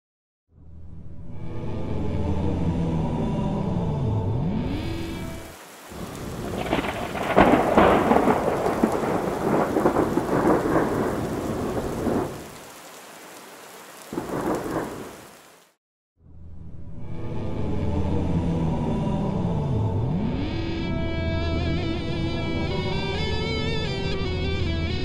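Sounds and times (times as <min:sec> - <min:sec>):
rain falling: 0:05.4 - 0:15.8
crackling thunder: 0:05.6 - 0:15.5.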